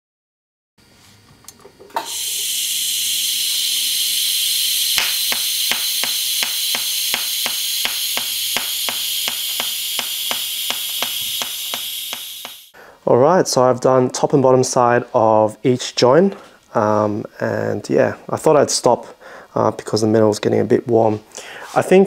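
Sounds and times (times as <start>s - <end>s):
welding arc hissing: 1.9s - 12.8s
sharp regular ticking: 3.3s - 12.7s.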